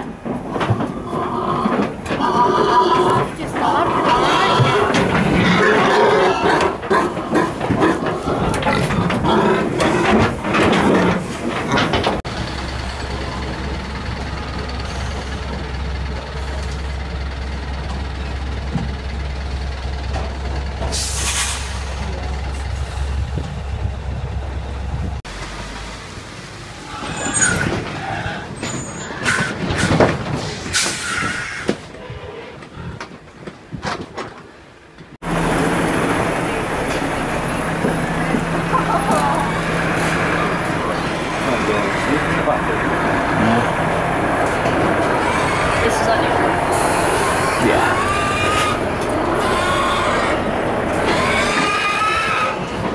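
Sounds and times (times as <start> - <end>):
diesel engine idling: 12.2 - 26.9, 35.2 - 51.6
air brakes hissing: 20.9 - 22.0, 28.7 - 31.9, 46.6 - 47.5
truck hisses and knocks: 20.9 - 22.0, 29.1 - 31.9.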